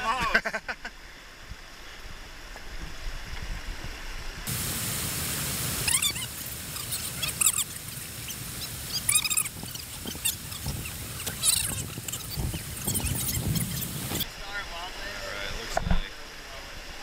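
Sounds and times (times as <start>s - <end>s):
river whitewater rushing: 4.5s - 15.5s.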